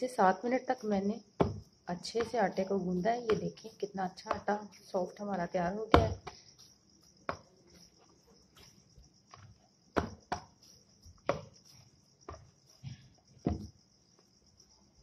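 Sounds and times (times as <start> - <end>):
dough thumping in bowl: 1.4 - 4.6, 5.9 - 6.4, 9.3 - 13.7.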